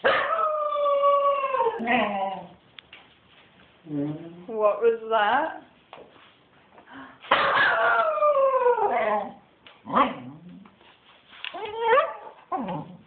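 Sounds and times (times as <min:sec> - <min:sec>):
dog howling: 0:00.1 - 0:02.6, 0:07.5 - 0:09.4.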